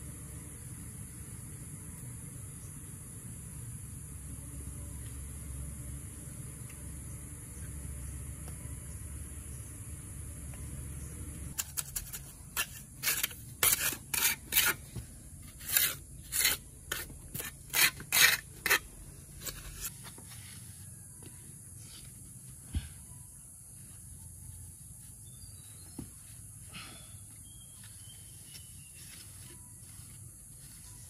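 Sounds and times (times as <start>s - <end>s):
harsh scraping strokes: 11.6s - 20.0s.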